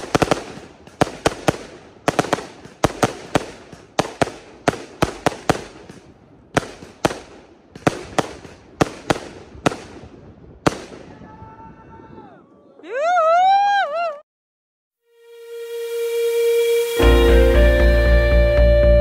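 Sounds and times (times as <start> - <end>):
fireworks bangs: 0.0 - 12.1.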